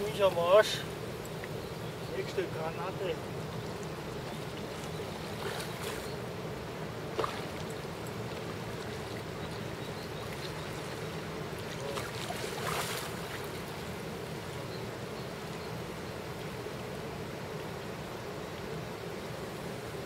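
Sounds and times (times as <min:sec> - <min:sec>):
river water rushing: 0:00.0 - 0:20.0
fish splashing at surface: 0:07.2 - 0:07.6.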